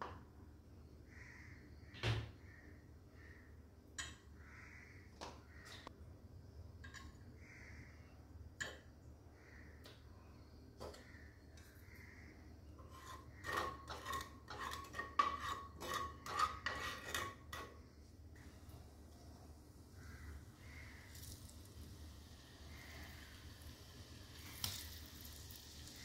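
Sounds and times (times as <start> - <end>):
metal spatula scraping frying pan: 12.8 - 17.8.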